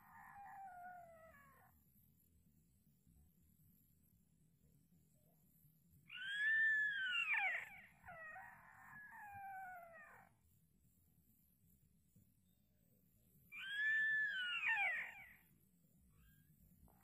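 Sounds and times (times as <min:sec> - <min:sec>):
high gliding animal call: 0:13.6 - 0:15.3.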